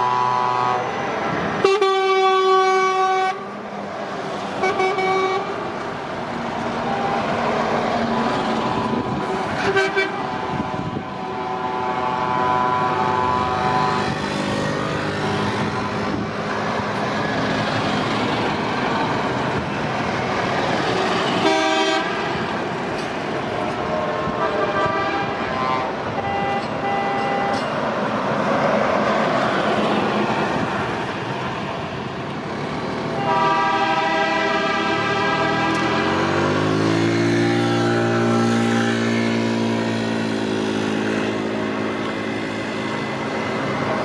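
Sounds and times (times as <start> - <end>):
truck horns: 0.0 - 3.6, 4.5 - 5.7, 8.8 - 16.2, 21.2 - 22.4, 23.6 - 27.8, 33.1 - 40.0
lorries driving past: 0.0 - 44.0.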